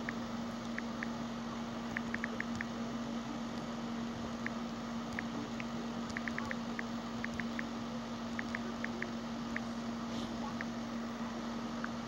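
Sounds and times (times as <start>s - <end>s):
low hum and hiss: 0.0s - 12.0s
phone keyboard ticks: 6.1s - 7.6s, 8.4s - 9.6s.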